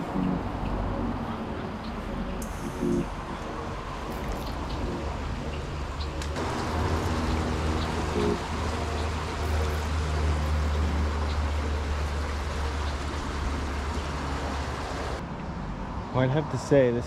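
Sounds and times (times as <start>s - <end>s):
deep steady rumble: 0.0s - 15.2s
water running down spillway: 6.2s - 15.2s.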